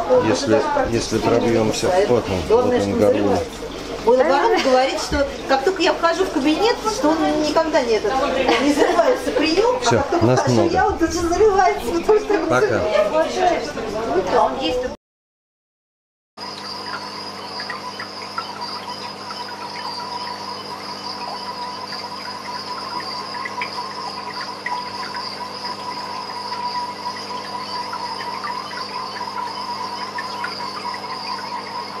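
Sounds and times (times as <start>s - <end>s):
insects trilling: 0.0s - 14.7s, 16.4s - 32.0s
insect chirps: 16.4s - 32.0s.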